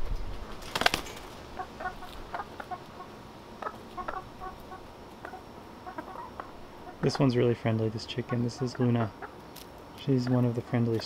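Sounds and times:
hen wings flapping: 0:00.0 - 0:02.4
hen clucking: 0:01.5 - 0:11.0.

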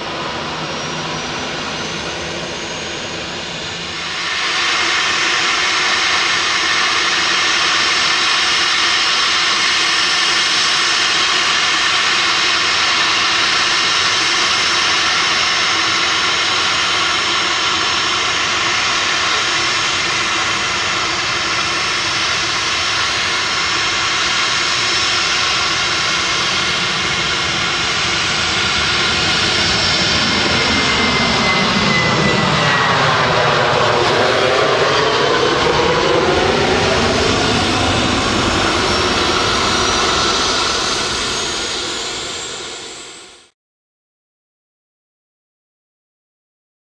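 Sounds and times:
jet engines at takeoff thrust: 0:00.0 - 0:43.5.

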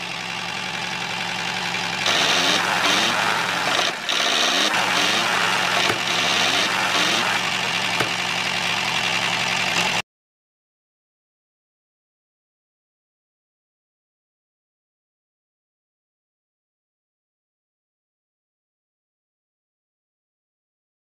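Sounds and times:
engine running with low hum: 0:00.0 - 0:10.0.

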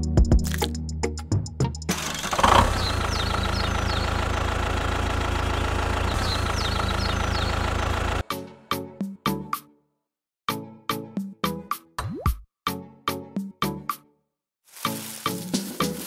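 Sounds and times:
birds chirping: 0:01.9 - 0:08.2
tractor engine running: 0:01.9 - 0:08.2.

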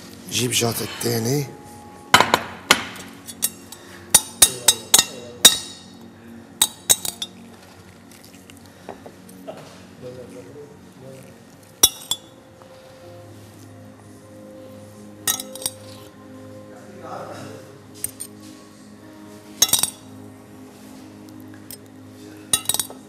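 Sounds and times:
metal spoon clinking ceramic bowl: 0:03.0 - 0:05.8, 0:06.6 - 0:07.4, 0:11.8 - 0:12.3, 0:15.2 - 0:16.0, 0:19.6 - 0:20.1, 0:22.5 - 0:23.0.

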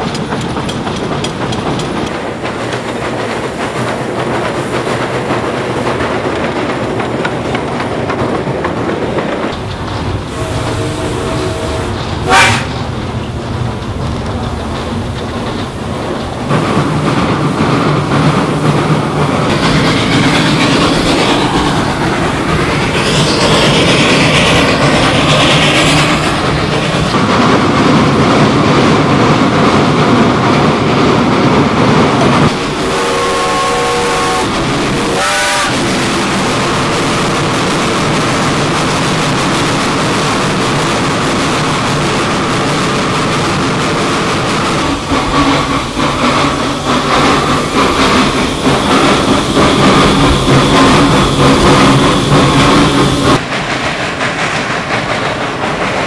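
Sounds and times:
steam locomotive running: 0:00.0 - 0:56.0
steam whistle: 0:10.3 - 0:12.8, 0:32.8 - 0:35.8
rough exhaust beats and clatter: 0:32.5 - 0:56.0.

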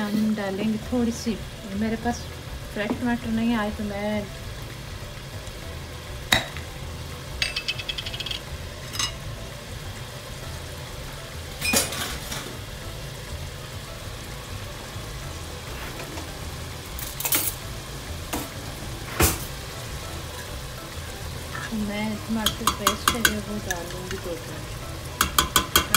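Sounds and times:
pot simmering: 0:00.0 - 0:25.9
glass jar and utensils clinking: 0:07.4 - 0:09.2.

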